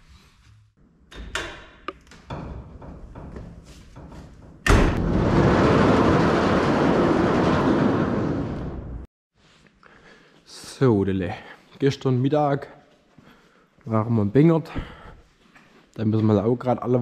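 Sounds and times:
metal sliding door rumbling: 2.3s - 9.1s
sudden bang: 4.7s - 9.1s.

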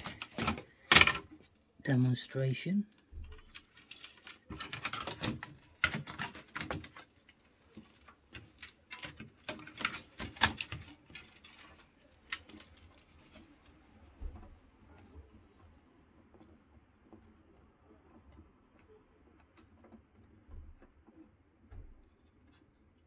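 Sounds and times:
small parts clicking and rattling: 0.0s - 1.6s, 2.9s - 14.5s.

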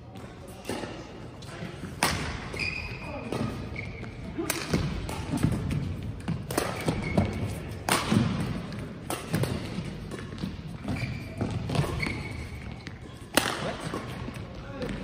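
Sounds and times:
shoe squeaks on court floor: 2.4s - 4.3s, 6.6s - 7.8s, 10.1s - 13.2s
racket striking shuttlecock: 4.4s - 14.4s.

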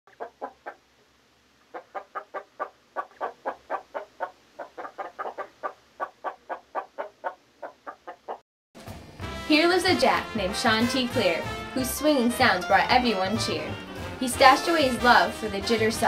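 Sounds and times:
chicken clucking: 0.1s - 0.9s, 1.7s - 8.4s.

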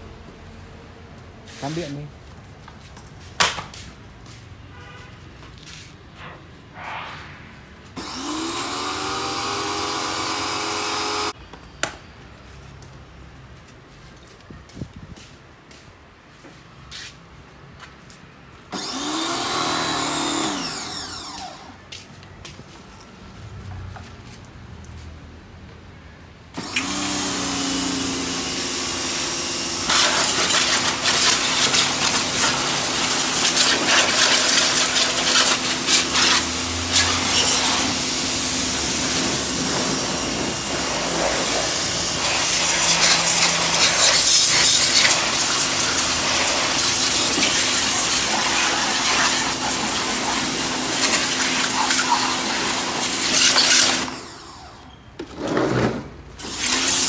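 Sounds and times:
high-pressure water jet spraying: 8.0s - 11.4s, 18.8s - 21.4s, 26.6s - 54.3s, 56.4s - 57.0s
pressure washer motor humming: 8.0s - 11.4s, 18.7s - 21.7s, 26.6s - 54.8s, 56.4s - 57.0s.

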